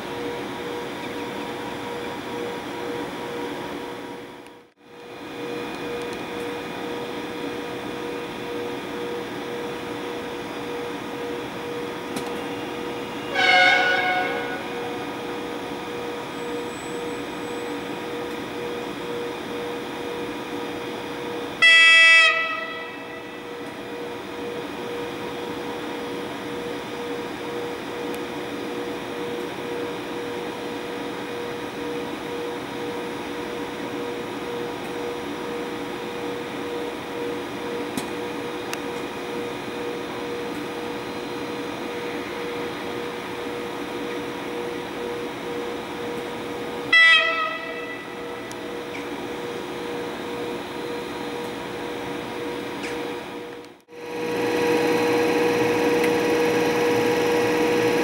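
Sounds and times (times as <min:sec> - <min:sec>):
locomotive electrical hum: 0:00.0 - 0:58.0
loud pitched toot: 0:13.2 - 0:15.1, 0:21.6 - 0:23.6, 0:46.8 - 0:48.5.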